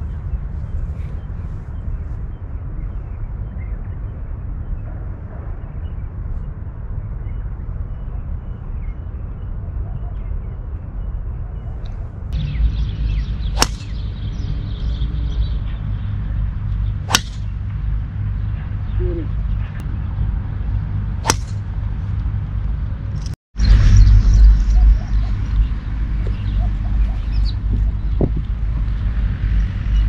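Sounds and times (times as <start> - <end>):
low outdoor rumble: 0.0 - 30.0
golf club striking ball: 13.6 - 14.0, 17.1 - 17.6, 21.2 - 21.7.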